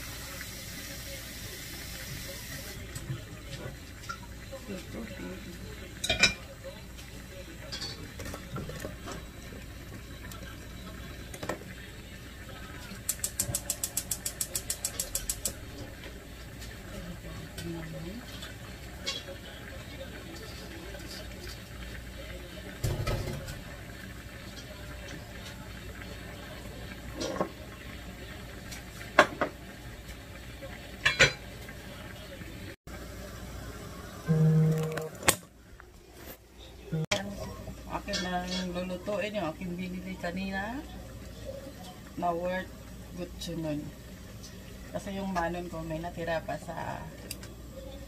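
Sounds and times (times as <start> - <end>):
gas stove hiss: 0.0 - 8.1, 8.8 - 32.3
gas stove igniter clicking: 13.1 - 15.6.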